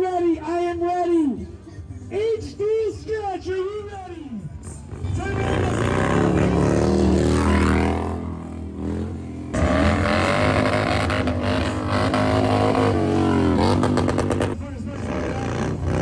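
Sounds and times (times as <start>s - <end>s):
motorcycle engine revving: 4.6s - 16.0s.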